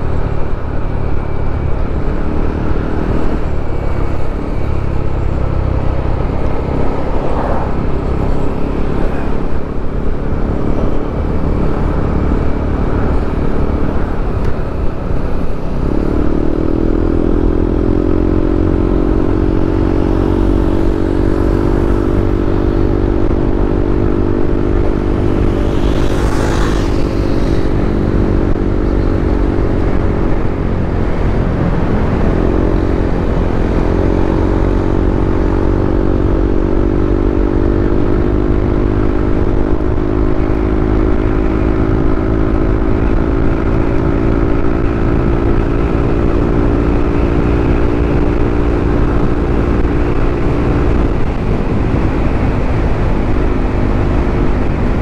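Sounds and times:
low rumble: 0:00.0 - 0:18.4
motorcycle engine cruising: 0:00.0 - 0:55.0.

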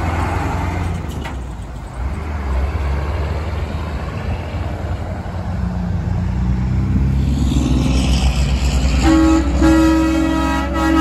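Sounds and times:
vehicle engine accelerating: 0:02.0 - 0:10.7
truck air horn chord: 0:09.0 - 0:11.0.

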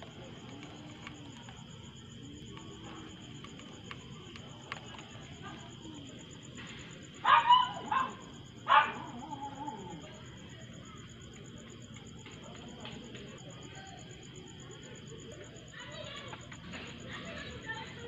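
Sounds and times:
dog barking: 0:07.2 - 0:09.9.

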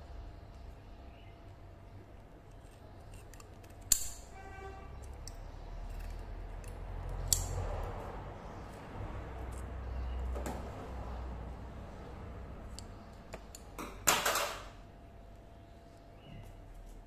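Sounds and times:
sharp metal clicks: 0:02.5 - 0:04.3, 0:05.0 - 0:07.7.

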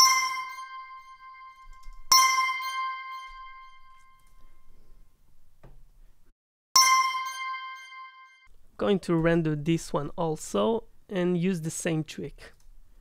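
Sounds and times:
bell-tone notification chime: 0:00.0 - 0:04.3, 0:06.8 - 0:08.5.

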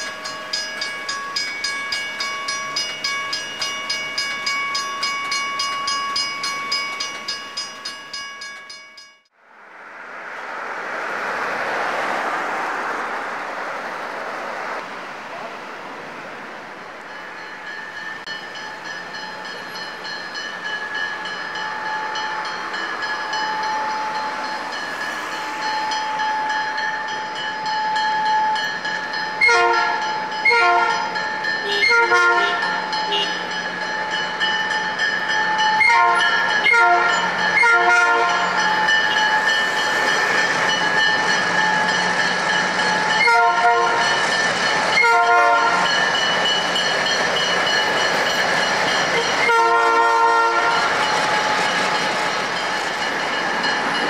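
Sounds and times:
crossing bell ringing: 0:00.0 - 0:09.3, 0:17.0 - 0:54.0
passing road traffic: 0:00.0 - 0:54.0
train horn sounding: 0:29.4 - 0:33.4, 0:35.8 - 0:38.6, 0:43.2 - 0:44.2, 0:45.0 - 0:46.0, 0:49.2 - 0:50.9.

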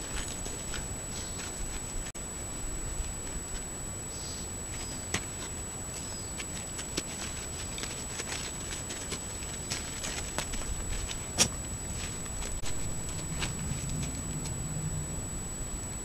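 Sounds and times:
hooves clicking on loose rock: 0:04.7 - 0:14.6.

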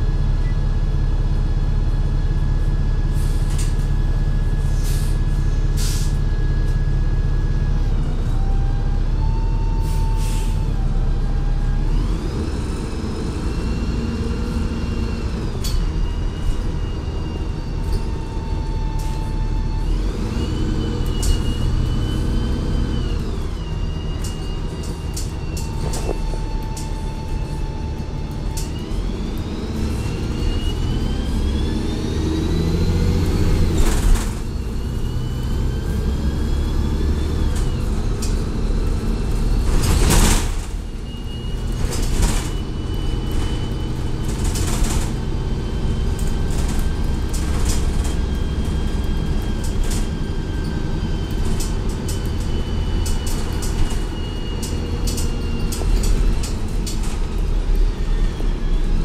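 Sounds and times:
bus engine low rumble: 0:00.0 - 0:59.0
bus transmission whine: 0:00.0 - 0:59.0.

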